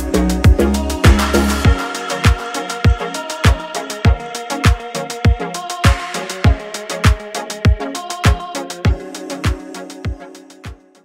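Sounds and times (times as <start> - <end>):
booming kick drum: 0.4 - 8.4.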